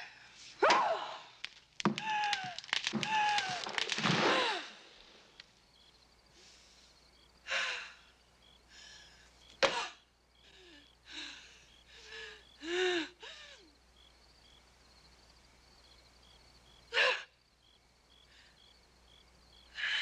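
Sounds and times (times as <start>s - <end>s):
faint cricket chirps: 0.0s - 20.0s
woman gasping and moaning: 2.0s - 5.0s, 10.5s - 13.7s.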